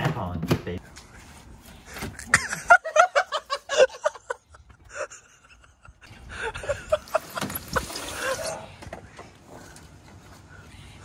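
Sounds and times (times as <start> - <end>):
person laughing: 2.2 - 8.6.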